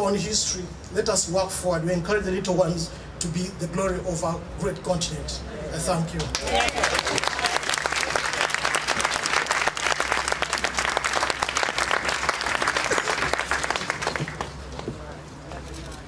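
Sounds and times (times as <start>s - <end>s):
audience applauding: 6.2s - 14.7s.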